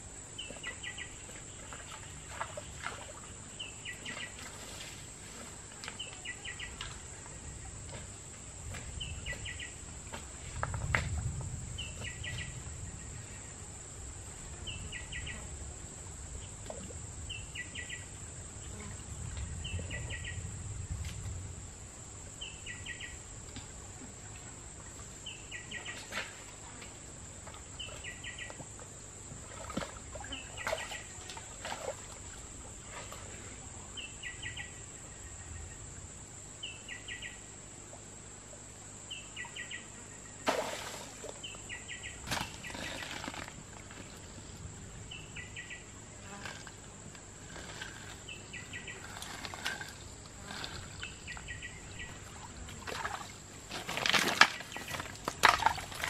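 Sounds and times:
light water splashes: 0.4 - 12.2, 23.4 - 33.6, 40.4 - 41.6, 46.4 - 56.0
stones clicking in a stream: 53.7 - 56.0.

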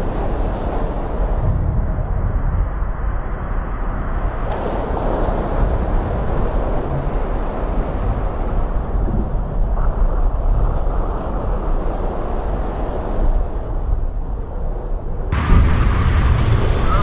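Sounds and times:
ship breaking through ice: 15.4 - 17.0.

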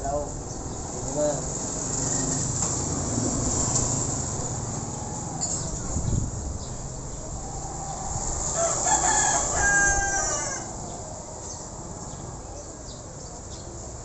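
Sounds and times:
rooster crowing: 4.5 - 5.8, 7.4 - 11.0.

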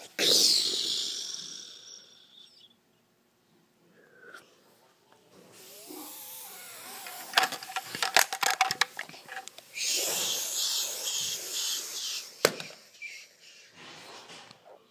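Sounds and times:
loud hiss: 5.6 - 8.0, 9.3 - 14.0
camera handling clicks and knocks: 7.3 - 9.6.

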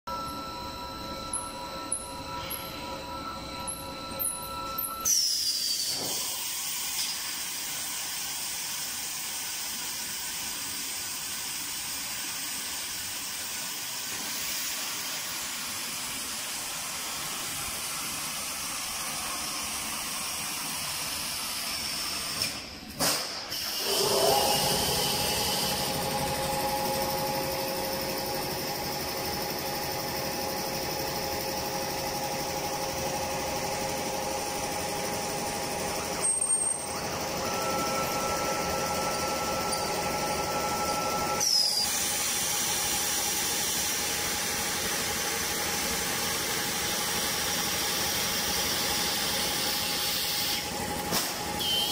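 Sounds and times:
steady hum with held tones: 0.1 - 5.1.

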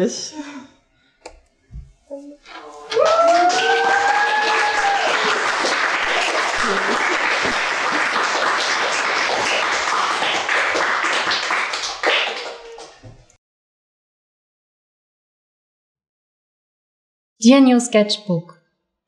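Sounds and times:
group clapping: 2.6 - 13.4.

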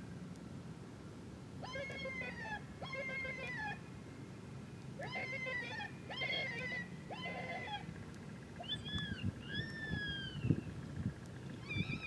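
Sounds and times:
animal distress cries from caller: 1.6 - 3.8, 5.0 - 7.9.

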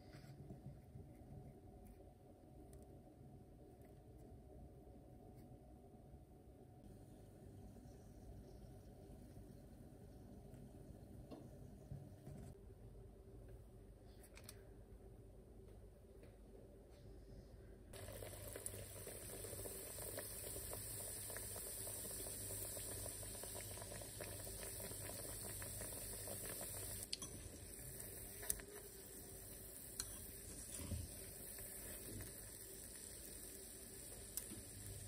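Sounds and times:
doughnuts sizzling in hot oil: 17.9 - 35.0.

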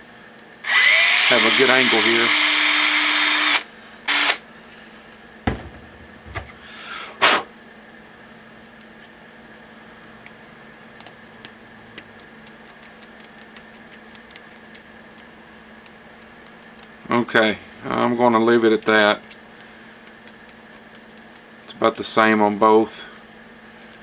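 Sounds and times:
knocks: 5.5 - 6.5.

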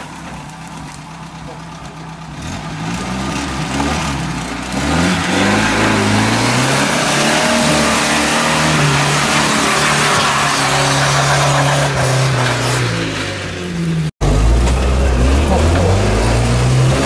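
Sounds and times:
engine revving hard: 2.4 - 17.0.

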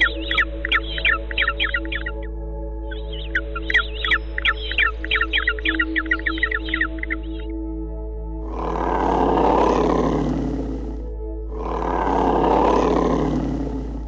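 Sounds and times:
background music: 0.0 - 14.0
polar bear roaring: 8.4 - 14.0.

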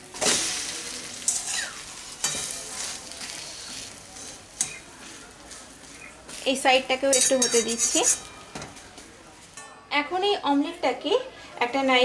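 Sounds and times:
omelette sizzling in oil: 0.0 - 9.5
steel spatula scraping a pan: 0.2 - 5.2, 6.9 - 8.8.

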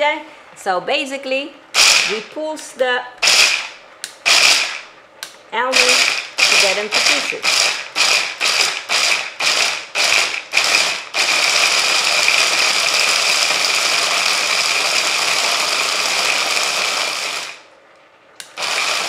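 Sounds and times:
immersion blender chopping nuts: 1.8 - 2.3, 3.2 - 4.9, 5.8 - 17.6, 18.5 - 19.0.

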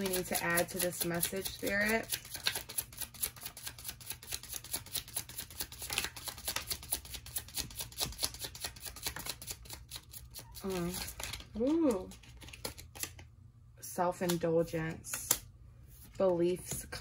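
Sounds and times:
cards being shuffled: 0.0 - 13.3.

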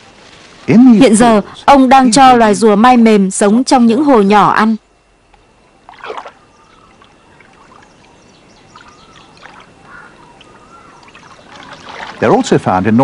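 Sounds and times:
water dribbling and lapping: 5.8 - 12.8
water splashing: 5.8 - 12.8.

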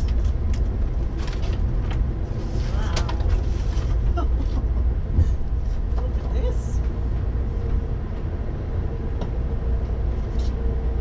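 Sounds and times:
train car low rumble: 0.0 - 11.0.

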